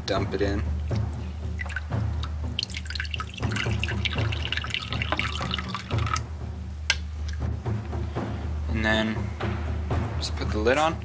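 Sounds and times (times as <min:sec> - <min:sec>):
water pouring into dish: 0:01.5 - 0:06.2.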